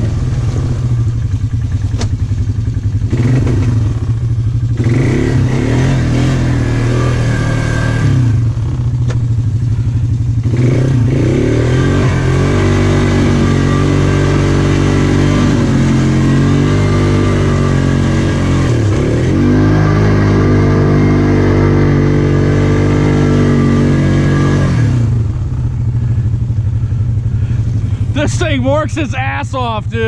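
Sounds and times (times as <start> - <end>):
quad engine under throttle: 0.0 - 30.0.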